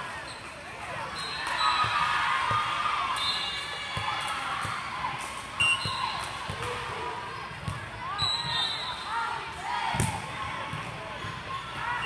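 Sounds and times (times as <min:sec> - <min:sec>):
balls bouncing on court: 0:01.4 - 0:02.9, 0:03.8 - 0:08.6, 0:09.9 - 0:12.0.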